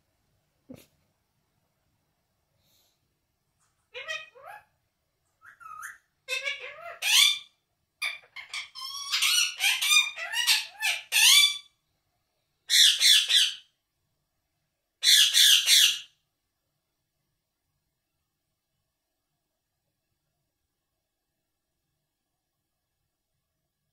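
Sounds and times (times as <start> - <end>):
parakeet chirping and chattering: 3.9 - 4.7, 5.4 - 11.7, 12.7 - 13.7, 15.0 - 16.1
parakeet squawks: 3.9 - 4.8, 5.4 - 11.8, 12.7 - 13.7, 15.0 - 16.2.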